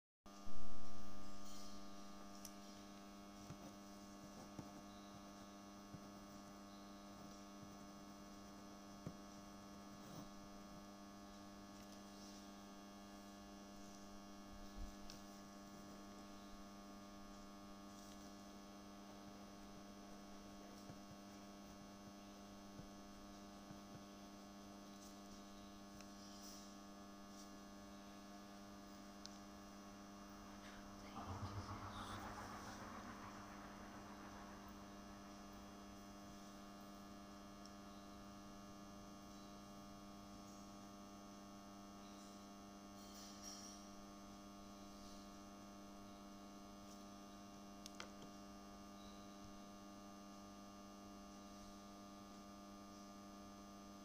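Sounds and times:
electrical hum: 0.3 - 39.8
loud sudden sound: 30.4 - 36.9.

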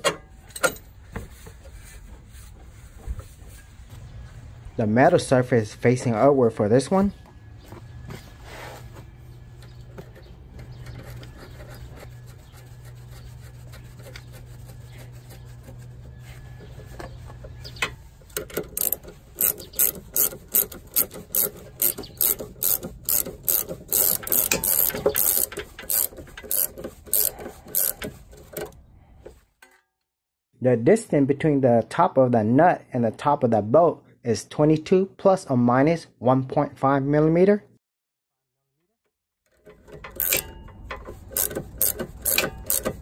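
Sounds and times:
hand ratchet clicking: 18.2 - 28.8, 39.5 - 43.0.

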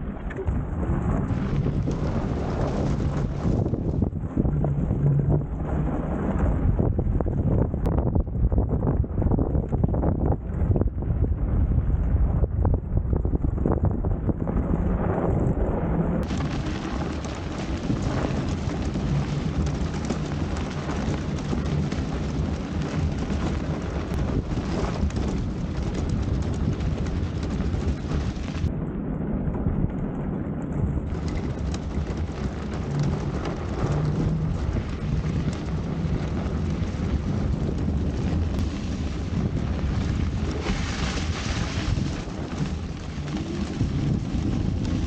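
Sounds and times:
tyres rumbling on snow: 0.0 - 45.0
wind buffeting microphone: 0.0 - 45.0
snow crackling: 1.1 - 6.6, 14.6 - 28.7, 31.0 - 45.0.

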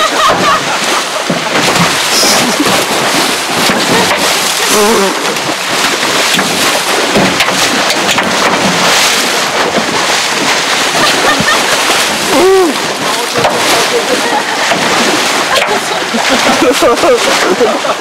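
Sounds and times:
rushing wind and sea: 0.0 - 18.0
faint voices: 12.1 - 18.0.

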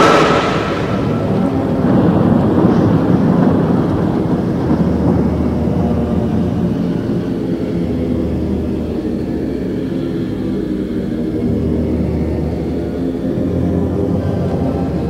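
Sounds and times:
low rumbling drone: 0.0 - 3.5.

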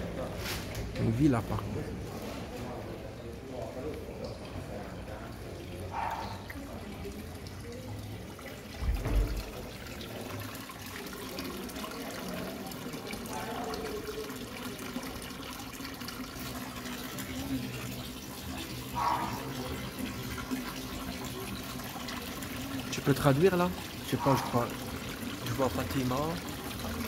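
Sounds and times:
fountain water running into basin: 0.0 - 27.0
low thump: 8.8 - 9.5.

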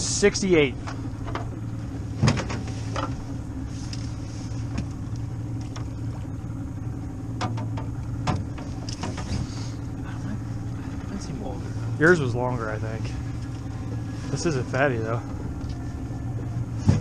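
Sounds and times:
boat motor idling: 0.0 - 17.0.

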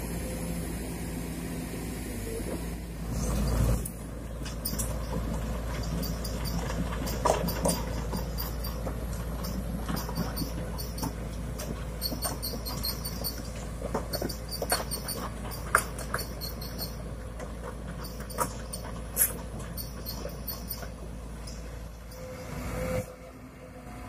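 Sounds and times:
excavator diesel engine running: 0.0 - 24.0
track links squeaking: 3.0 - 23.3.

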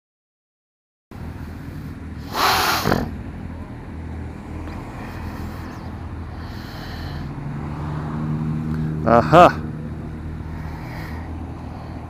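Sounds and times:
person sniffing: 2.2 - 3.2.

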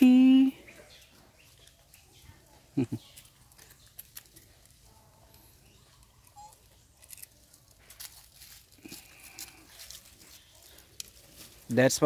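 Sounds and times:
dry leaves and twigs crackling: 0.0 - 12.0.

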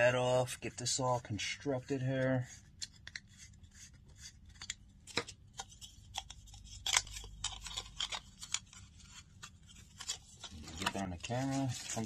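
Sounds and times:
plastic parts clicking and scraping: 4.3 - 12.0.

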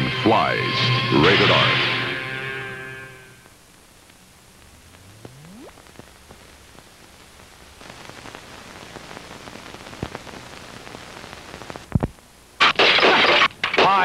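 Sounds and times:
film soundtrack hiss and crackle: 0.0 - 14.0
clicks and pops: 4.0 - 6.5, 11.8 - 12.2.

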